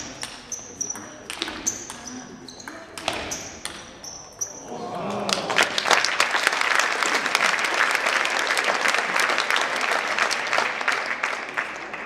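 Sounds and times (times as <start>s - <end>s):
audience applauding: 4.9s - 12.0s.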